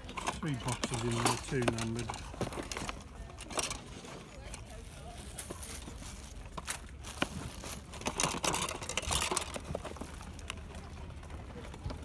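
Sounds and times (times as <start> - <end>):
cardboard and plastic parts rustling: 0.0 - 12.0.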